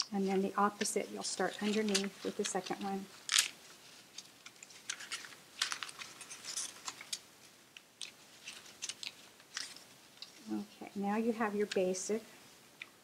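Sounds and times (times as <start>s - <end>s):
paper rustling and crinkling: 0.0s - 10.5s
crisp paper ticks: 4.1s - 10.4s.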